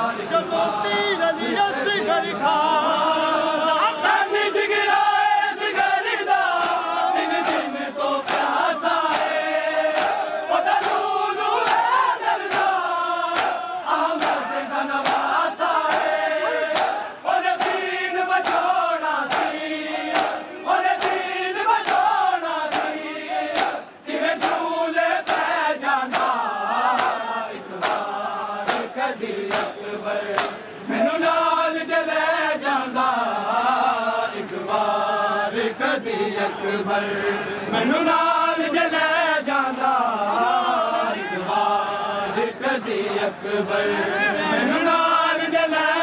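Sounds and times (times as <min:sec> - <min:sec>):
crowd of men chanting: 0:00.0 - 0:46.0
hands slapping chests: 0:06.5 - 0:17.8, 0:18.4 - 0:20.4, 0:21.0 - 0:23.8, 0:24.4 - 0:25.5, 0:26.1 - 0:27.2, 0:27.8 - 0:28.9, 0:29.5 - 0:30.6.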